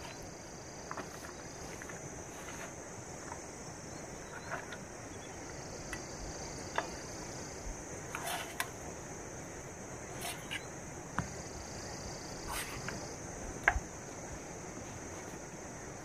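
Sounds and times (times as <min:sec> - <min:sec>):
board and pan set down: 0:10.1 - 0:11.4.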